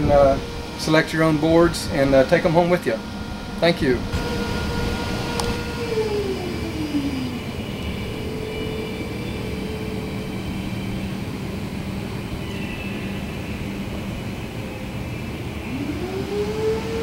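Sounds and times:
mechanical drone with low hum: 0.0 - 17.0
tone sliding down in pitch: 1.8 - 11.4.

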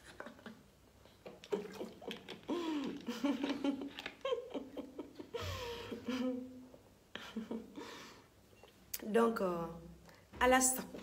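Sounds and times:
woman laughing softly: 1.4 - 8.2.

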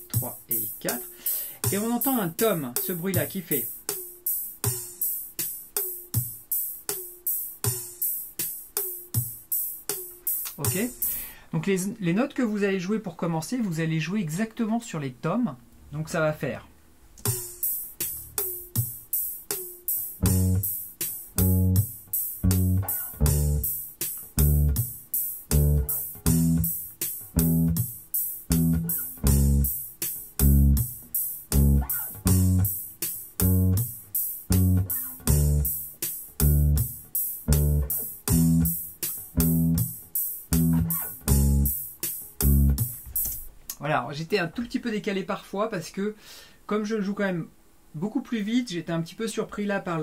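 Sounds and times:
drum loop with toms: 0.0 - 11.3, 17.2 - 43.6
ticking hi-hat: 0.0 - 11.3, 17.2 - 43.8
muted electric bass notes: 20.2 - 20.7, 21.4 - 23.7, 24.4 - 24.8, 25.5 - 26.8, 27.4 - 27.8, 28.5 - 29.8, 30.4 - 30.9, 31.5 - 32.7, 33.4 - 33.9, 34.5 - 35.8, 36.4 - 38.8, 39.4 - 39.9, 40.5 - 41.8, 42.4 - 42.8.

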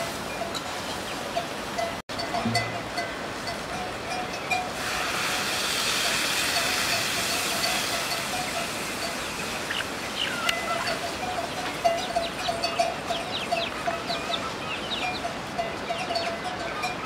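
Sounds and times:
curry pot hissing: 4.7 - 9.7
chickens clucking: 4.8 - 17.0.

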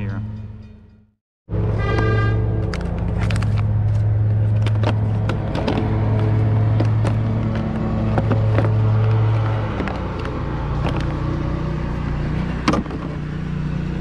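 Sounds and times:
plastic case clicks and rustles: 2.7 - 11.2.

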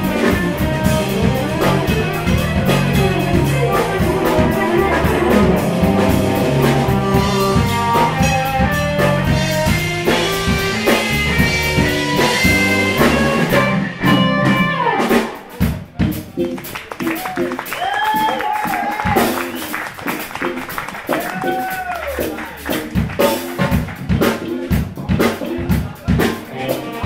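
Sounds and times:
electric bass: 0.0 - 16.6
drum kit: 0.0 - 27.0
electric guitar: 0.0 - 27.0
jazz fusion band playing: 0.0 - 27.0.

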